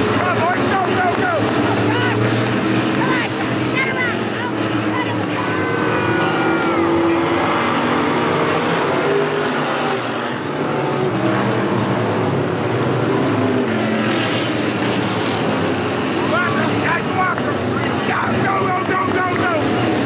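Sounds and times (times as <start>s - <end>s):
race car engines: 0.0s - 20.0s.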